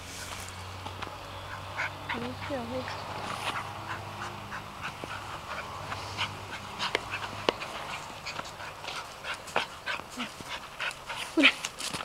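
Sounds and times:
dog breathing and sniffing: 1.5s - 12.0s.

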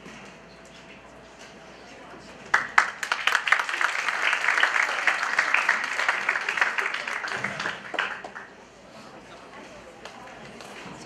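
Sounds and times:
audience applauding: 2.5s - 8.6s.

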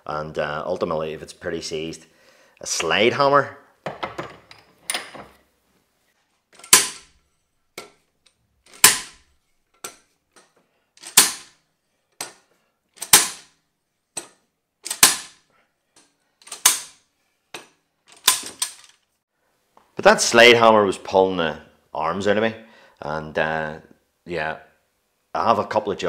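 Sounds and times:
slide hammer metallic clanks: 6.6s - 7.2s.

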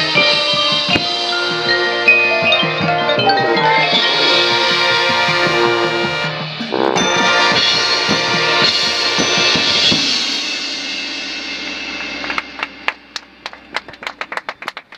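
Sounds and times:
drum hits: 0.0s - 13.7s
marching band brass: 0.0s - 14.4s
cymbal crash: 3.8s - 13.7s
people clapping: 12.0s - 14.9s.

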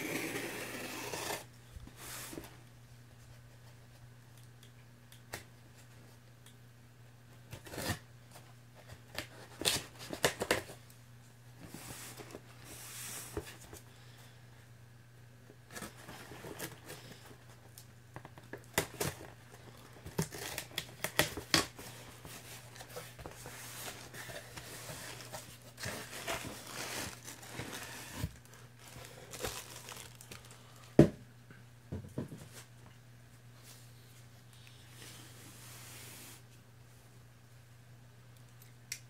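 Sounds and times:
plastic wrapping crinkling: 22.6s - 30.9s.

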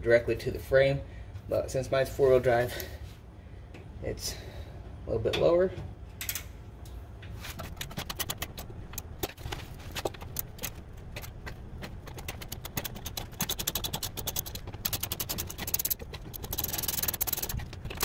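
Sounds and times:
socket ratchet clicking: 7.7s - 9.4s, 10.0s - 18.0s.

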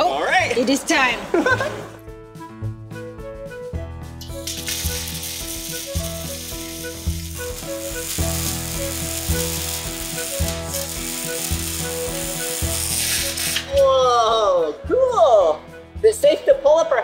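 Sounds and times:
music with bouncing bass: 1.4s - 17.0s
arc welding crackling sizzle: 4.3s - 13.9s.

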